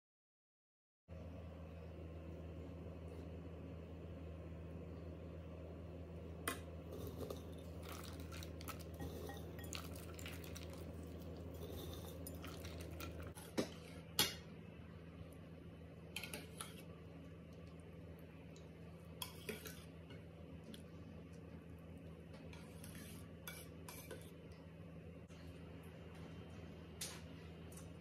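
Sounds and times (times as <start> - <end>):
low hum: 1.1 - 23.0
spoon clinking on glass dishes: 9.0 - 10.6.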